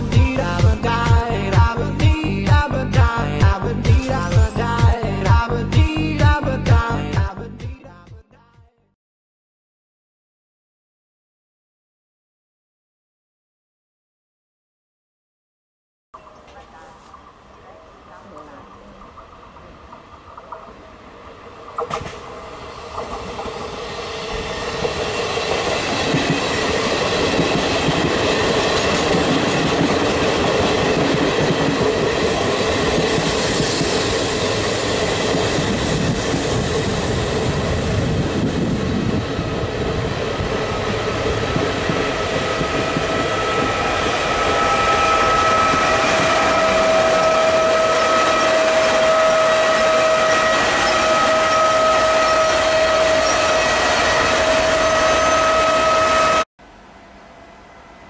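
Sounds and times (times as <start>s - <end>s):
locomotive whine: 16.2s - 58.0s
train wheels rumbling on rail: 18.4s - 56.4s
clickety-clack of coaches: 24.8s - 36.6s.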